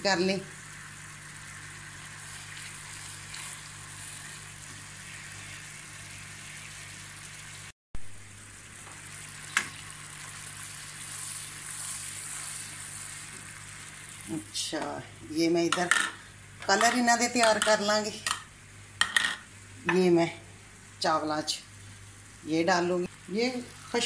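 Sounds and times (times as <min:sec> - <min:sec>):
syrup boiling and bubbling: 0:00.1 - 0:15.3.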